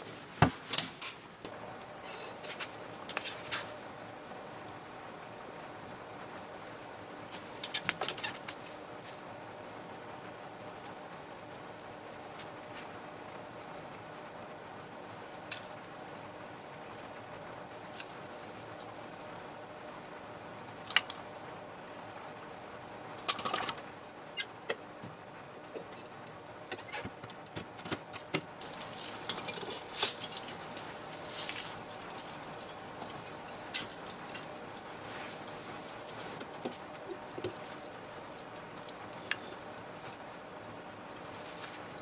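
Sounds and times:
faint steady hum: 0.0s - 42.0s
metal tools clinking and scraping: 28.7s - 30.5s.

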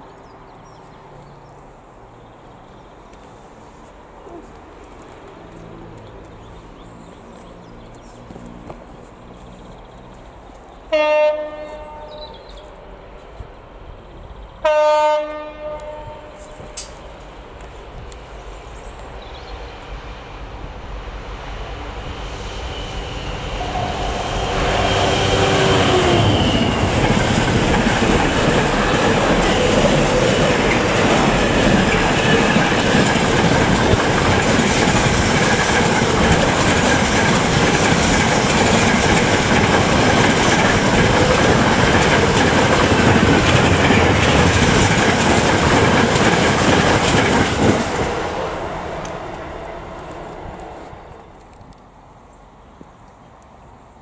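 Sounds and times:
train wheels rolling on rails: 0.0s - 53.6s
locomotive engine passing: 15.2s - 52.0s.

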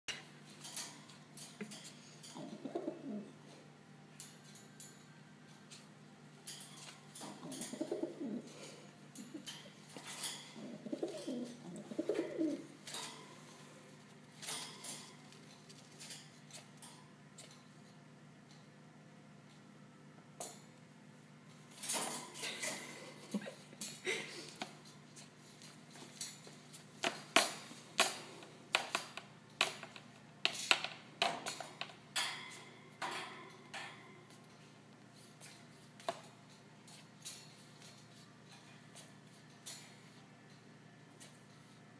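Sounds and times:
pigeon cooing: 2.3s - 3.5s, 7.2s - 12.8s.

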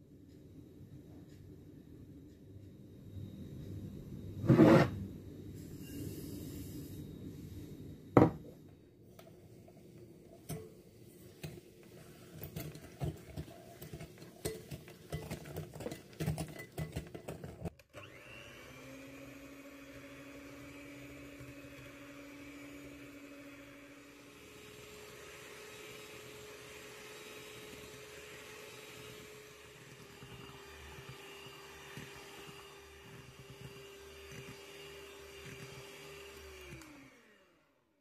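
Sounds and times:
mixer beaters clattering in bowl: 11.4s - 17.8s
electric mixer motor whir: 15.2s - 38.0s.

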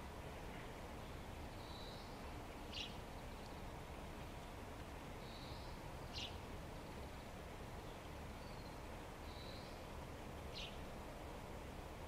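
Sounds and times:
low background hiss: 0.0s - 12.0s
small bird calling: 0.5s - 3.7s, 5.2s - 7.3s, 7.9s - 9.8s, 10.5s - 10.8s.

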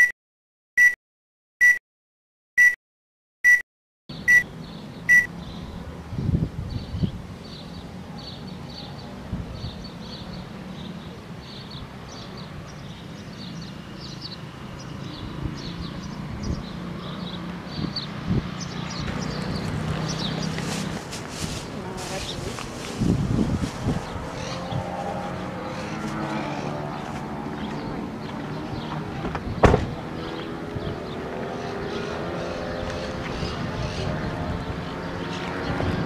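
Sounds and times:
birds chirping: 3.5s - 36.0s
countdown beeps: 4.3s - 4.5s
dull bumps: 29.2s - 30.0s.

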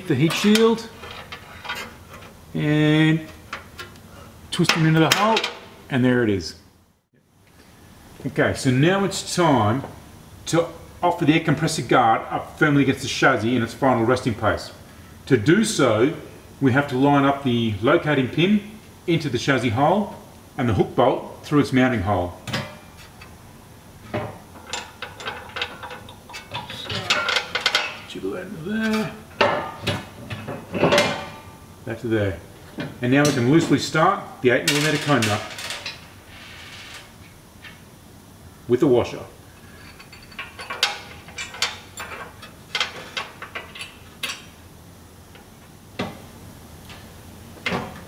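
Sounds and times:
metal clunk: 28.9s - 31.6s.

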